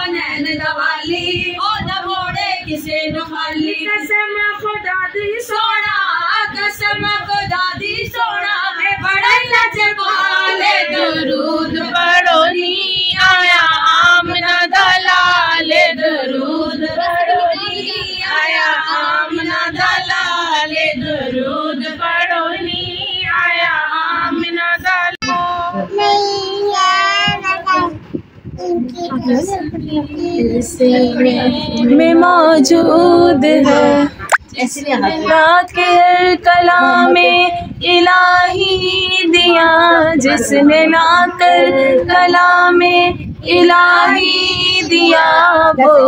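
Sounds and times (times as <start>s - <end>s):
women singing a devotional song: 0.0s - 25.9s, 29.3s - 46.0s.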